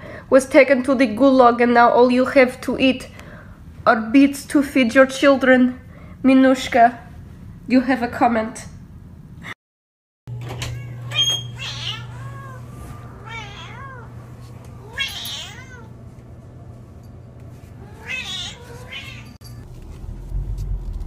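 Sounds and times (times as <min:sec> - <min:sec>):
cat meowing: 0:10.7 - 0:14.2, 0:14.8 - 0:15.9, 0:17.8 - 0:19.4.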